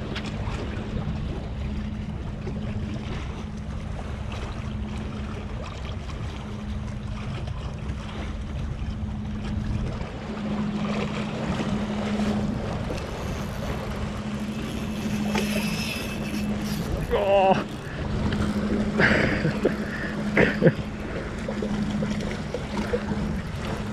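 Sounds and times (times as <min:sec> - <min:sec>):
engine droning: 0:00.0 - 0:23.9
wind rumble on microphone: 0:00.0 - 0:23.9
small waves washing on concrete: 0:09.5 - 0:23.9.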